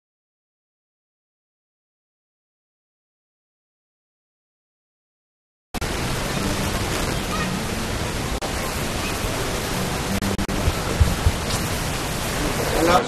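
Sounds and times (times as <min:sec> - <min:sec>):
loud steady hiss: 0:05.8 - 0:13.0.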